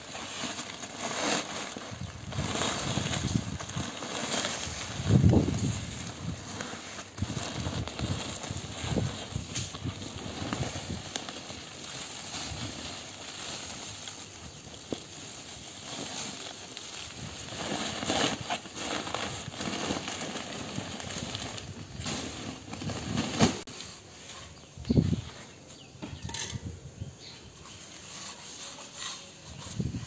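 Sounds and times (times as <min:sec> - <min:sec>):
plastic sack crinkling: 0:00.0 - 0:23.7.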